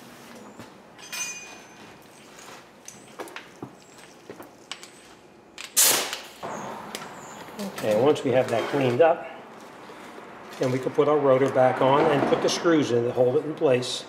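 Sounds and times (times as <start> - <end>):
faint metal clinks: 1.0 - 5.1.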